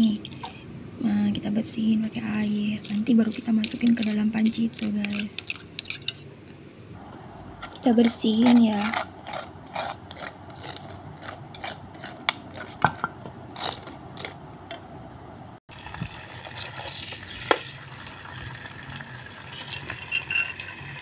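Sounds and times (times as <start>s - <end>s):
spoon scraping stone mortar: 2.1s - 6.2s, 7.6s - 14.4s, 19.5s - 20.8s.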